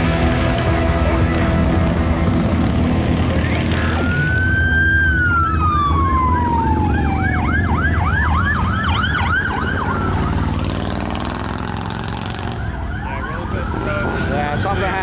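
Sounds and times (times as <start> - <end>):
motorcycle engines rumbling: 0.0 - 15.0
siren wailing: 3.2 - 10.7, 12.0 - 15.0
siren yelping: 3.3 - 10.6, 12.3 - 14.3.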